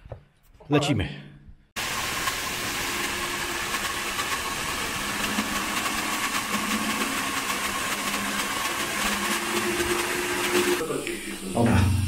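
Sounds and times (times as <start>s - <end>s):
core drill drilling into concrete: 1.8s - 10.8s.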